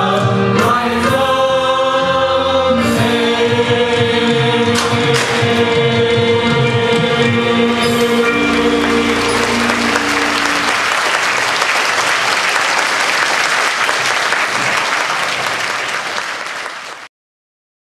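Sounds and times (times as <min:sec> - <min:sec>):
group singing with accompaniment: 0:00.0 - 0:11.0
crowd applauding: 0:07.9 - 0:17.1.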